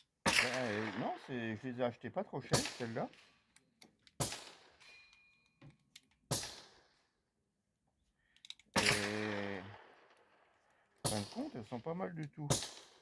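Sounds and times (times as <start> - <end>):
gunshots with reverberation: 0.2 - 1.7, 2.5 - 3.4, 4.2 - 4.8, 6.3 - 7.0, 8.8 - 13.0
small clicks: 8.2 - 8.8.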